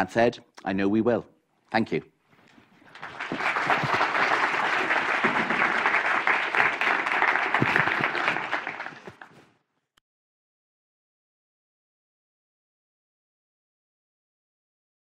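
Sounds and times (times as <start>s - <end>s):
audience applauding: 2.8s - 9.4s.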